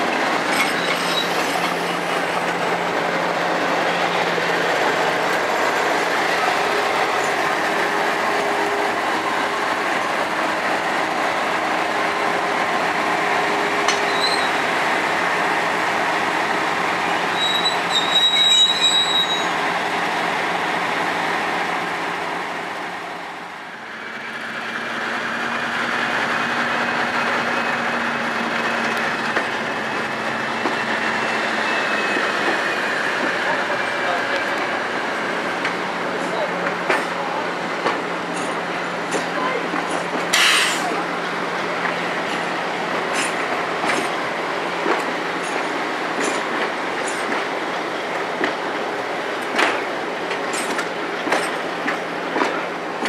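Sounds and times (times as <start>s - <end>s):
high wheel squeal: 0.5s - 1.9s, 13.9s - 14.6s, 17.1s - 19.6s, 30.6s - 32.8s.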